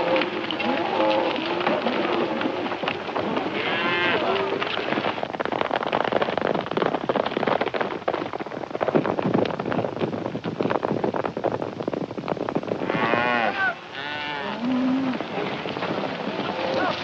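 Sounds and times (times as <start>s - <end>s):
milling cattle: 0.0s - 5.2s, 12.8s - 17.0s
horses galloping hooves: 0.0s - 17.0s.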